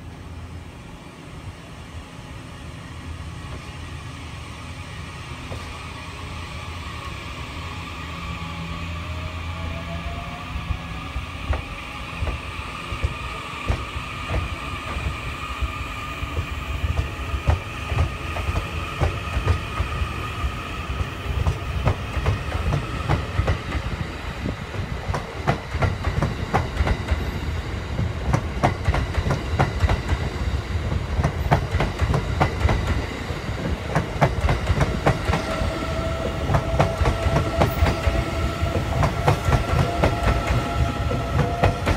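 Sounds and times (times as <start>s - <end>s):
low train rumble: 0.0s - 41.9s
train wheels clacking over rail joints: 11.5s - 15.1s.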